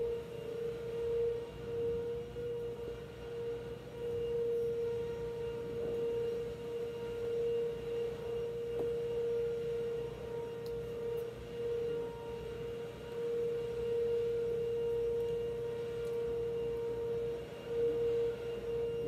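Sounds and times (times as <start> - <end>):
steady mid-pitch hum: 0.0 - 19.0.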